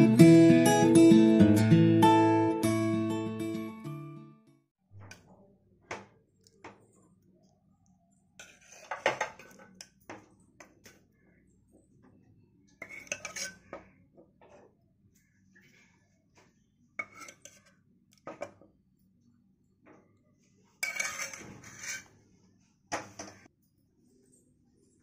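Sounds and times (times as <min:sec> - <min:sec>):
spoon scraping a glass bowl: 0:08.4 - 0:10.0, 0:12.8 - 0:13.9, 0:17.0 - 0:17.8, 0:20.8 - 0:22.2.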